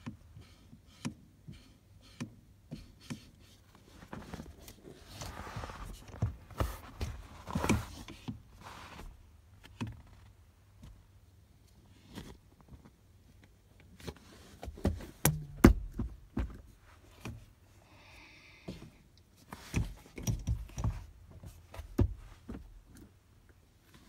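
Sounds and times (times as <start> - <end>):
knocks and thumps in car cabin: 5.5 - 8.6, 14.6 - 17.5, 19.6 - 23.1.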